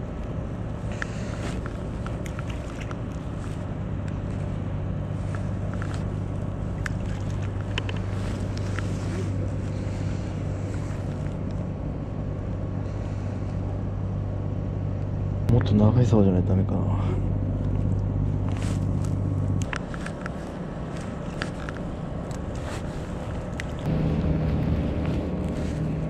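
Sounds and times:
low motor drone: 0.0s - 26.0s.

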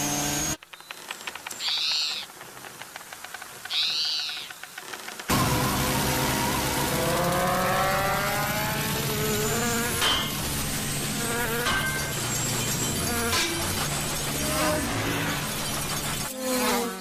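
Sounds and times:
cartoon insect wings buzzing: 5.3s - 17.0s.

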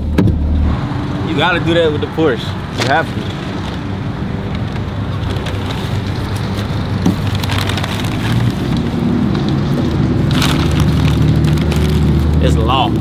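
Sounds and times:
paper bag crinkling: 5.0s - 12.7s.

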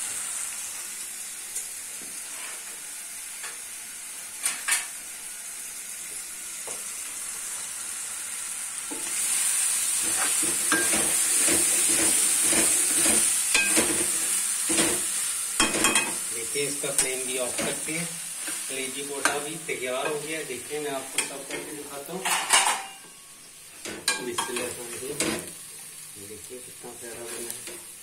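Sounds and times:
food sizzling in a pan: 0.0s - 28.0s
spoon scraping a pan: 10.0s - 16.2s.

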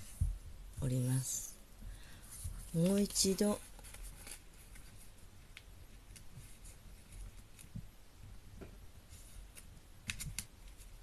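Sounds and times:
paper being folded and creased: 2.5s - 7.8s, 9.1s - 11.0s.

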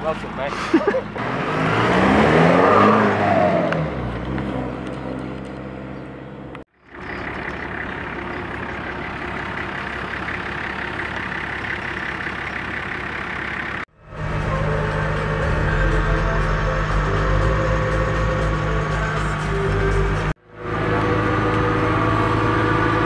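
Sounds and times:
hum of vehicles: 0.0s - 23.0s
vehicle driving past: 13.9s - 23.0s.

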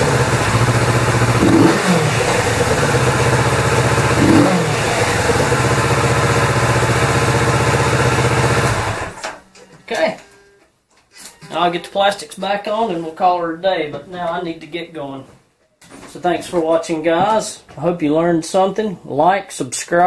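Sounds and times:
motorcycle engine idling and revving: 0.0s - 9.2s.

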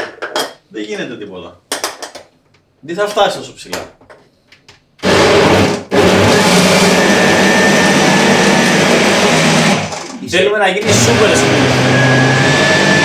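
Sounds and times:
blender motor running: 5.0s - 10.2s, 10.8s - 13.0s.

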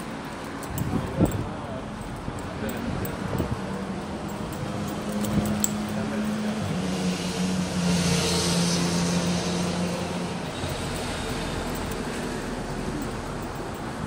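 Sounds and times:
street noise: 0.0s - 14.0s
vehicle engine passing by: 4.5s - 13.7s.

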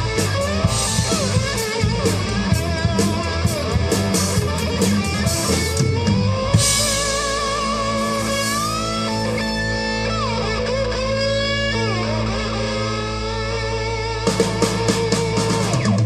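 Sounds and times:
drum kit beat: 0.0s - 10.8s, 14.3s - 16.0s
electric guitars and bass: 0.0s - 16.0s.

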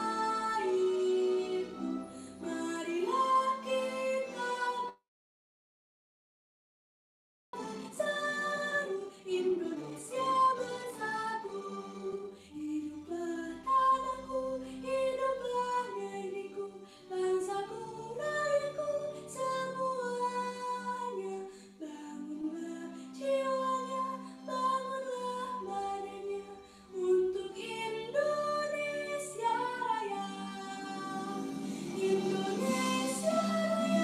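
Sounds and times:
girl singing into a microphone: 0.0s - 1.8s, 7.8s - 11.5s, 12.6s - 34.0s
singer breathing: 2.0s - 2.5s, 12.3s - 12.6s, 16.8s - 17.1s, 21.5s - 21.8s, 26.6s - 27.0s, 31.4s - 32.0s.

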